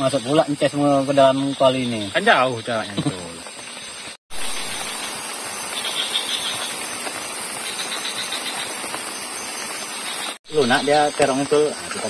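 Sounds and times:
broth boiling in pot: 0.0 - 12.0.

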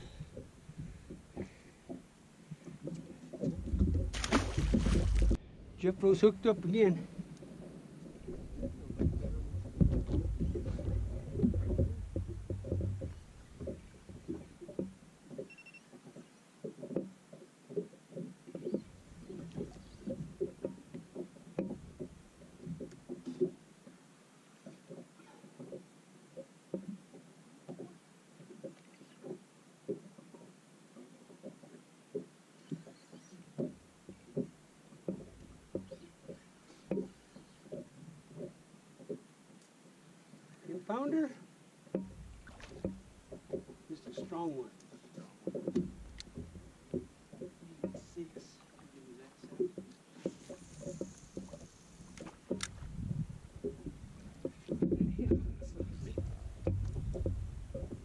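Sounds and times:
small waves slapping a boat hull: 0.0 - 58.0
wind rumble on microphone: 3.5 - 6.2, 7.2 - 14.6, 51.4 - 58.0.

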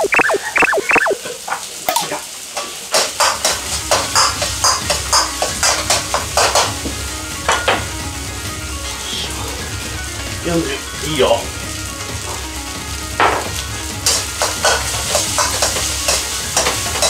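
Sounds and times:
rice sizzling in a wok: 0.0 - 17.0
metal ladle scraping a pan: 14.0 - 17.0.

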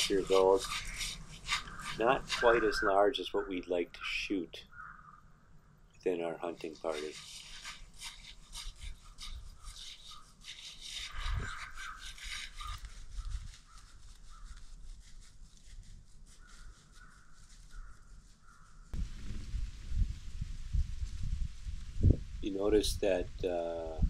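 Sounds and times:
wind rumble on microphone: 11.1 - 11.7, 12.8 - 13.6, 19.0 - 24.0.

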